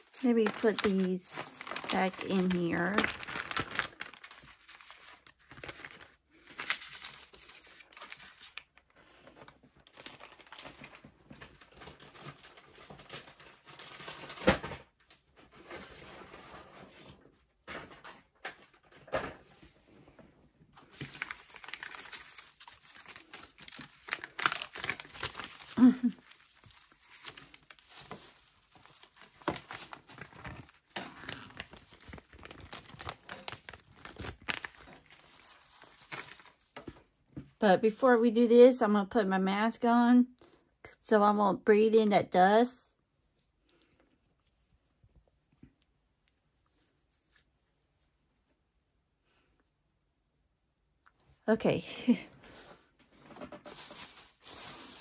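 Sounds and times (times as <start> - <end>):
plastic bags crinkling: 0.0 - 14.7, 20.8 - 37.2, 53.3 - 55.0.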